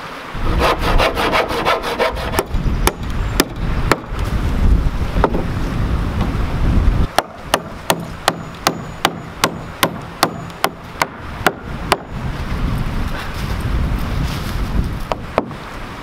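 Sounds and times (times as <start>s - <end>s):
hammer striking nail: 7.2s - 12.1s.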